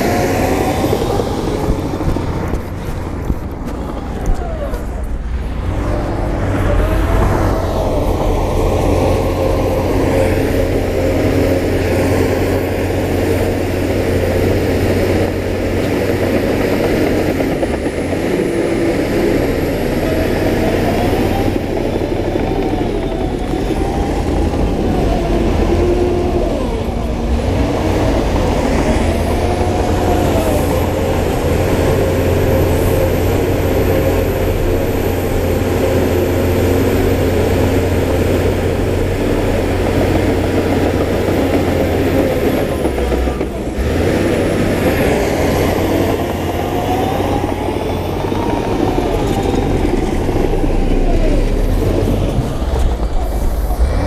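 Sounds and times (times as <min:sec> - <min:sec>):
heavy machinery engine drone: 0:00.0 - 0:54.0.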